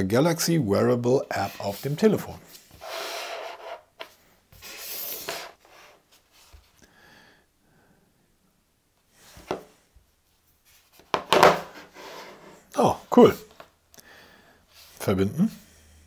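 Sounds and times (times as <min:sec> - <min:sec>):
soft rubbing and scraping: 0:01.3 - 0:06.8, 0:09.2 - 0:12.7.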